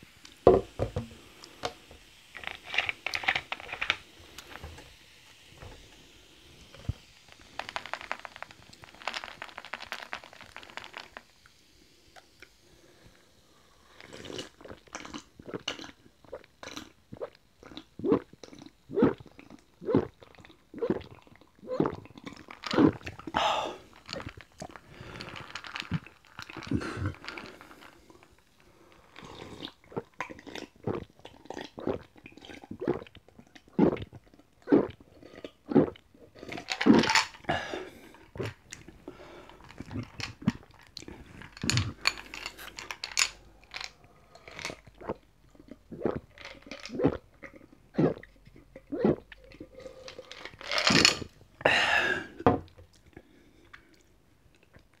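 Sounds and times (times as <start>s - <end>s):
wet mouth sounds: 14.0s - 27.6s, 29.2s - 42.9s, 44.4s - 55.0s
person gulping and swallowing: 14.0s - 27.9s, 29.1s - 55.0s.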